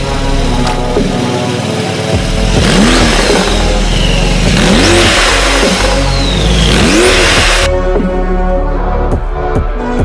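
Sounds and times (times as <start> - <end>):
car engine revving: 0.0 - 7.7.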